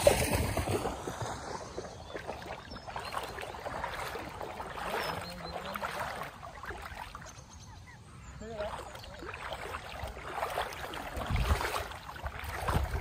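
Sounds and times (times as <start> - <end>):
footsteps wading through water: 0.0 - 13.0.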